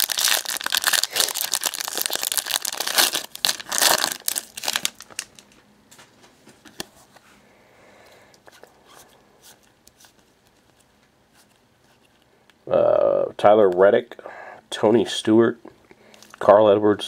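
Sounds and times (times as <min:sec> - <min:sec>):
foil wrapper tearing and crinkling: 0:00.0 - 0:05.4.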